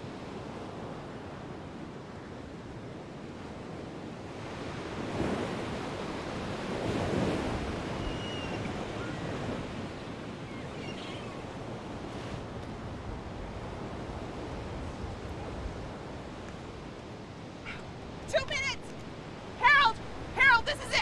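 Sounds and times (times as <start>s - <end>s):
faint high chirps: 8.0s - 9.3s, 10.4s - 11.4s.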